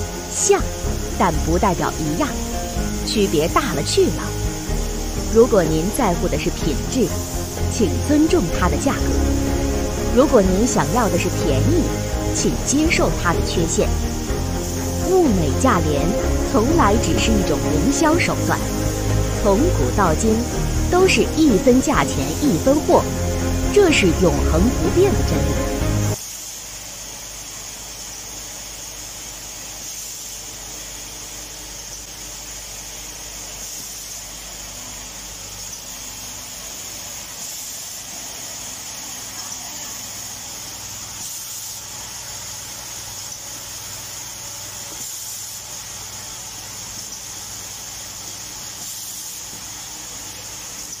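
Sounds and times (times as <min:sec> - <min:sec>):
low machine hum: 0:00.0 - 0:26.2
machine hissing: 0:00.0 - 0:51.0.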